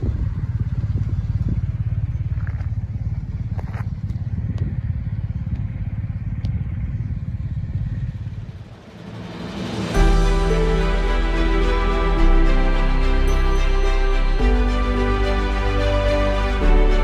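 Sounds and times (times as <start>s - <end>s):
motorcycle engine running: 0.0s - 10.6s.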